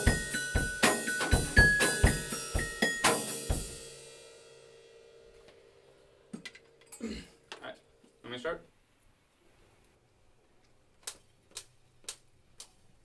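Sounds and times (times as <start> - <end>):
glockenspiel bell notes: 0.0 - 4.0
cymbals ringing out: 0.0 - 5.3
drum kit beat: 0.0 - 5.3.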